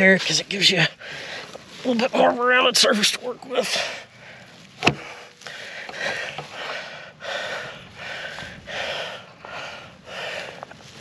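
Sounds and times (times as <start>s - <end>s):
man breathing hard: 1.0s - 1.6s, 3.6s - 11.0s.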